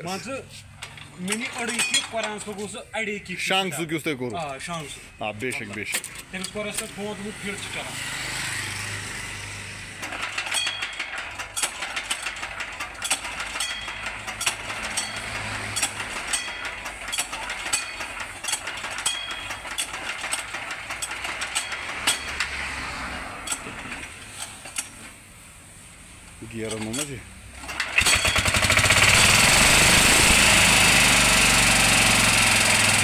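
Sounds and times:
metallic clicks and rattles: 0.8s - 2.8s, 5.4s - 7.2s, 10.0s - 25.2s.

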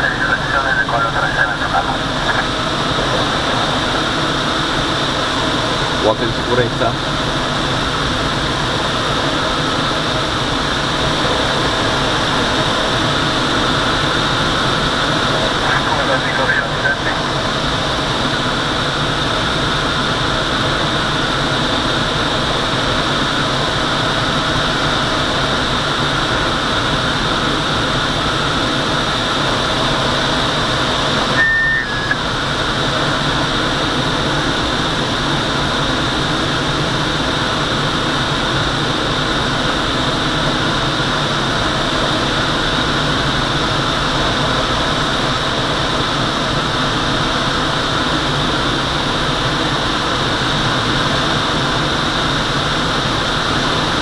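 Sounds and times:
air rushing in cockpit: 0.0s - 19.3s, 24.9s - 35.5s
plane engine drone: 0.0s - 54.0s
short electronic beep: 31.4s - 32.2s.

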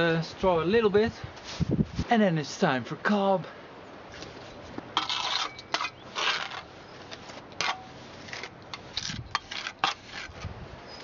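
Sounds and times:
trowel scraping wet clay: 5.0s - 10.5s.

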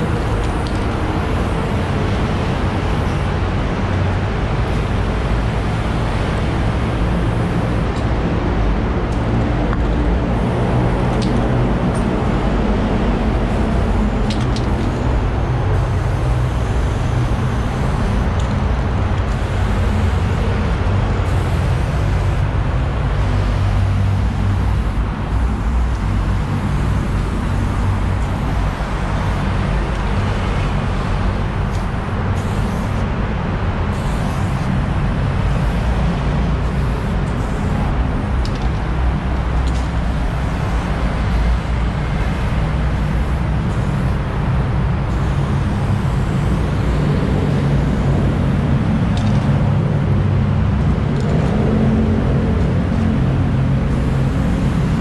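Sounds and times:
spray can hissing: 31.2s - 33.1s, 33.9s - 36.1s.

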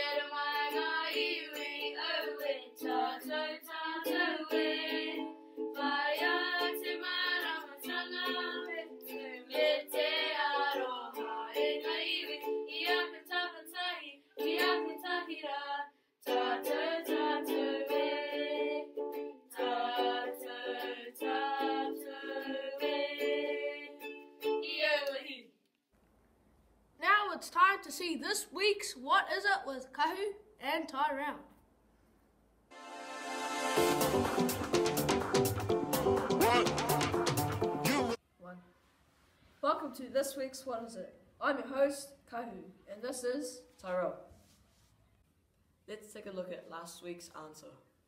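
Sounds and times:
ukulele strumming: 0.0s - 13.1s, 14.4s - 15.2s, 16.3s - 24.9s, 33.6s - 38.2s
person singing: 32.8s - 38.2s.

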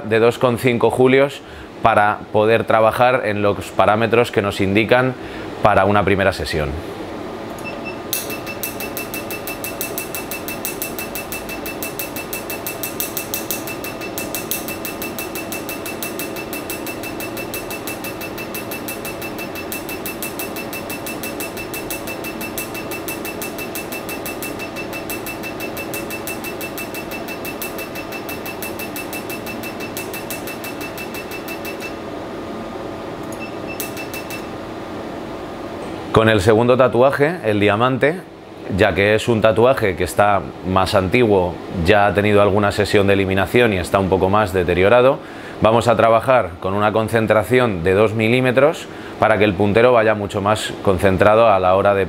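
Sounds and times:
machine hum: 6.8s - 36.2s
laser pulses snapping clicks: 33.2s - 34.4s.

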